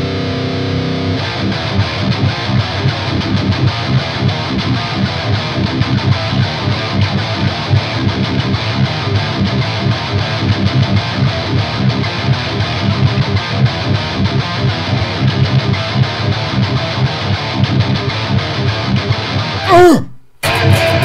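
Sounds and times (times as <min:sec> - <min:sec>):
high-gain electric guitar riffing: 0:00.0 - 0:21.0.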